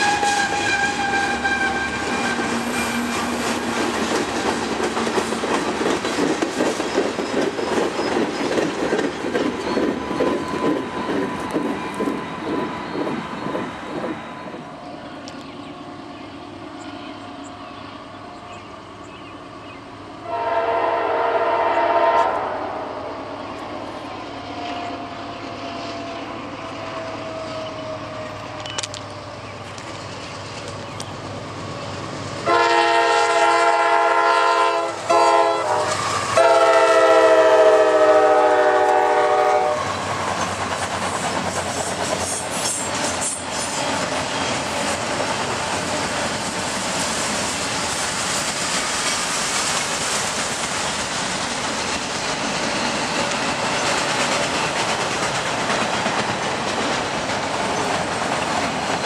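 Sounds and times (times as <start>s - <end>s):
train air horn blasts: 0.0s - 3.5s, 20.2s - 23.2s, 32.4s - 40.0s
train wheels clattering over rails: 0.0s - 14.6s, 26.7s - 59.0s.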